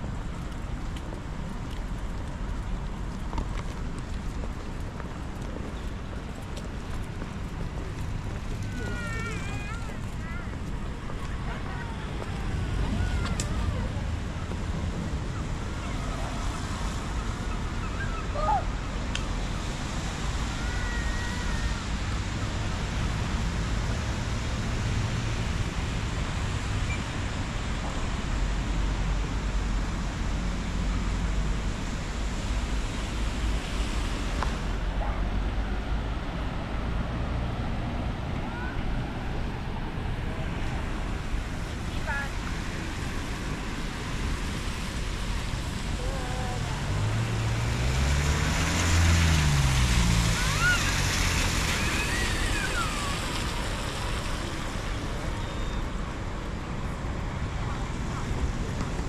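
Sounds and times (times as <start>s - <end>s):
wet street noise: 0.0s - 59.0s
rain hiss: 11.5s - 59.0s
vehicle engine passing: 44.3s - 55.2s.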